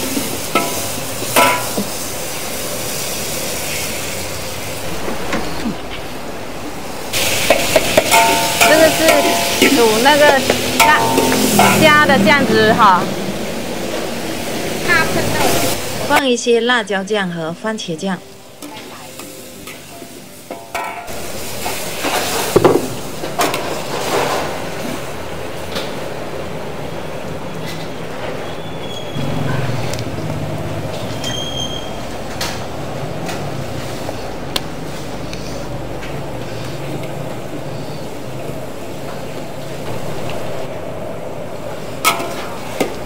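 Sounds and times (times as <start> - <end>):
gas burner roaring: 0.0 - 43.0
metal ladle clanking against wok: 0.5 - 1.9, 7.4 - 12.0, 19.2 - 21.1, 42.0 - 42.9.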